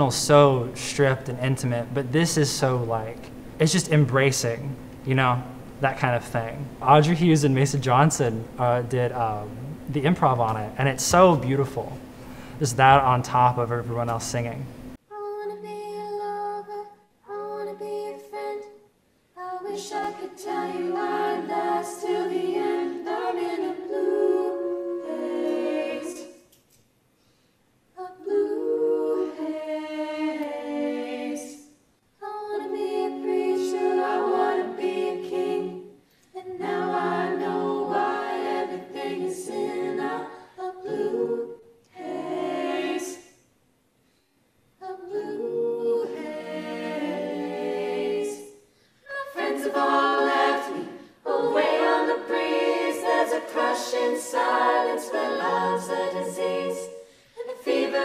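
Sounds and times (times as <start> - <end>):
female vocal ensemble singing: 0.0 - 3.2, 15.1 - 26.6, 28.0 - 43.4, 44.8 - 58.0.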